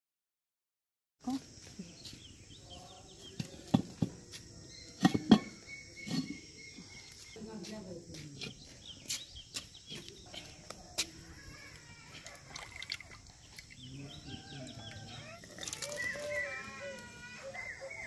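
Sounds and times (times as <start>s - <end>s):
insect drone: 3.9s - 18.0s
animal calls: 10.4s - 18.0s.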